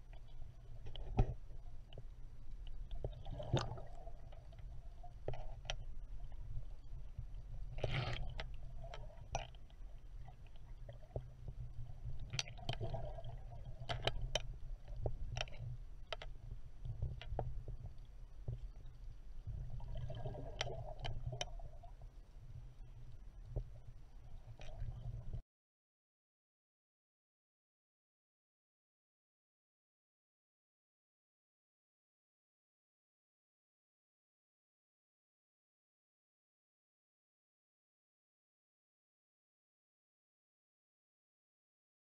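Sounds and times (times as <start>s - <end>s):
underwater low rumble: 0.0s - 25.4s
sharp underwater clicks: 12.2s - 17.8s.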